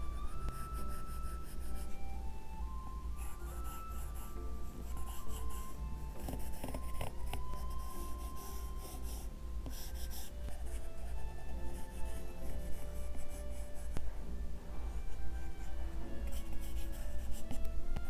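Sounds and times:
soft background music: 0.0 - 18.0
stylus scratching on screen: 3.2 - 11.0, 16.3 - 17.6.

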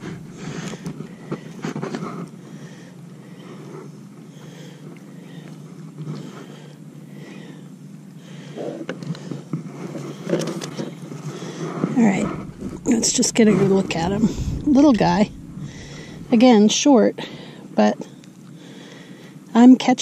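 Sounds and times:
low background noise: 0.0 - 20.0
hands rustling: 11.2 - 16.4.

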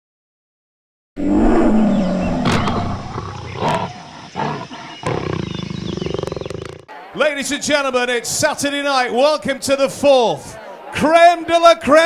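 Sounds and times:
big cat roaring: 1.2 - 6.8.

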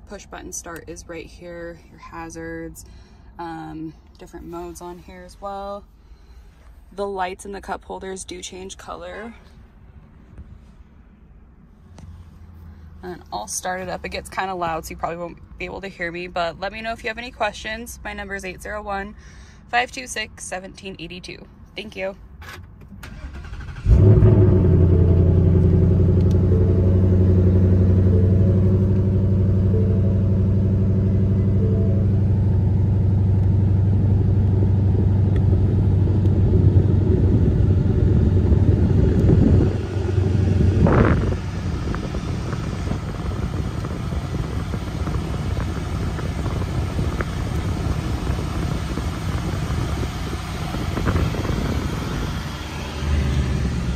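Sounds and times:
car engine starting: 22.4 - 53.9
car engine idling: 23.0 - 53.9.

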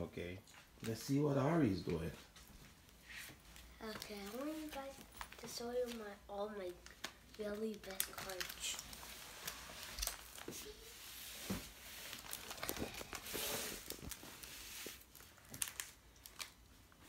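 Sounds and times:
plastic binder pages rustling: 3.5 - 17.0.

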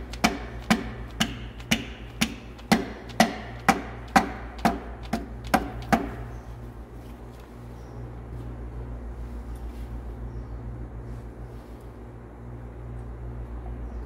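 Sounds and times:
rubber mallet tapping metal: 0.0 - 6.2.

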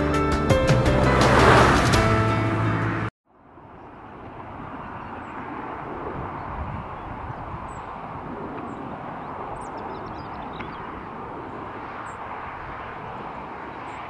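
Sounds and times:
distant jet engines: 0.9 - 14.0
wind buffeting microphone: 3.7 - 14.0.

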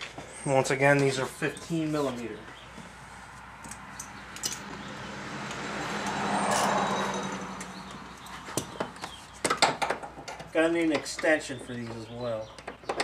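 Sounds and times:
vehicle passing: 1.9 - 9.4
sharp clicks and knocks: 8.5 - 11.4, 12.5 - 13.0.

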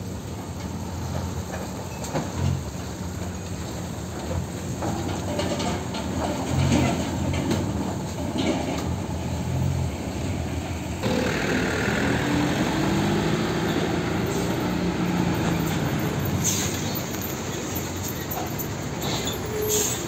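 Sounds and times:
diesel truck engine passing: 9.2 - 19.0
truck engine rising in pitch: 11.0 - 18.0.

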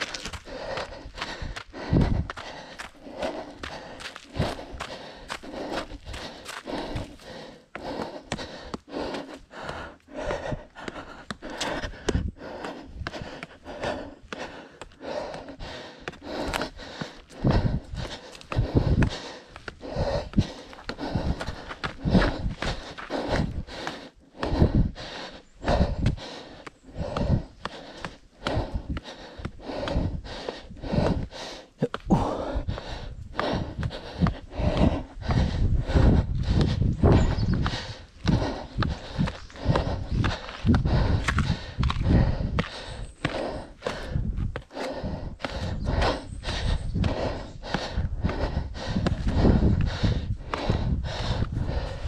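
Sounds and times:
footfalls on trail: 0.0 - 24.9, 36.4 - 52.0
heavy breathing: 0.0 - 52.0
runner heavy panting: 0.0 - 52.0.

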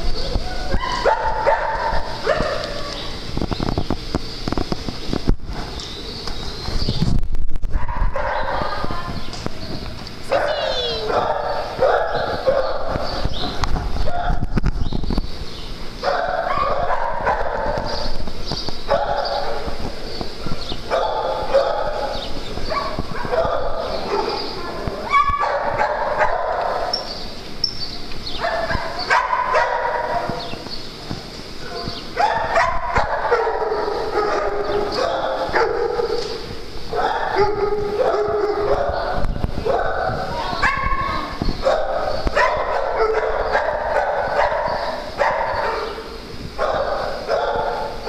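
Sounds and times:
small dogs barking and yipping: 0.0 - 3.2, 7.7 - 9.2, 10.2 - 14.5, 16.0 - 18.2, 18.8 - 27.2, 28.4 - 30.6, 31.6 - 48.0.

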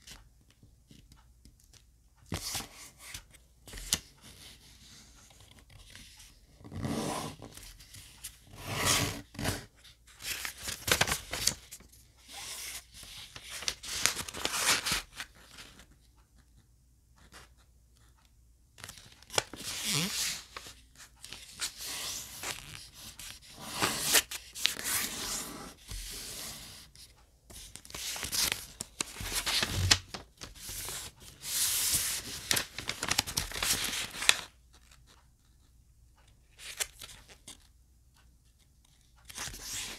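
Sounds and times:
paper rustling and crinkling: 8.9 - 16.0, 26.9 - 35.2.

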